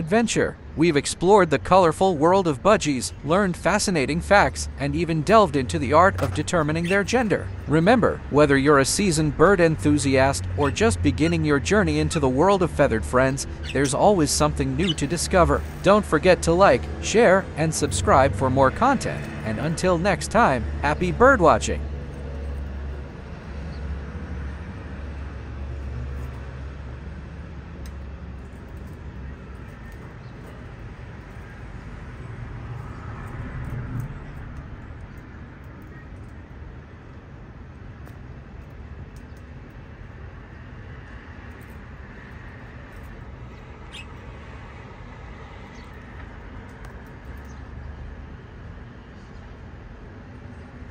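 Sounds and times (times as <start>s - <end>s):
budgerigar chirping: 13.4s - 14.1s, 14.7s - 15.4s.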